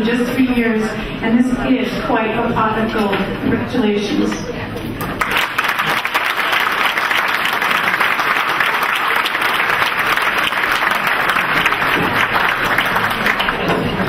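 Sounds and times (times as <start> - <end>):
audience applauding: 5.0 - 14.0.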